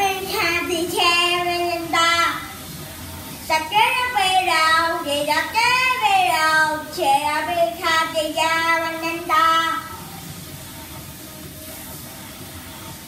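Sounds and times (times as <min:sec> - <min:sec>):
boy singing karaoke: 0:00.0 - 0:02.8, 0:03.4 - 0:10.2.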